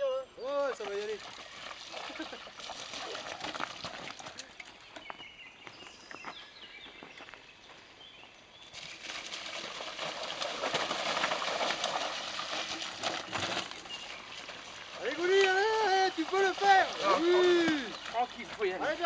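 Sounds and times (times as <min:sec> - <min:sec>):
bike tyres splashing through stream: 0:00.8 - 0:04.4, 0:08.8 - 0:19.0.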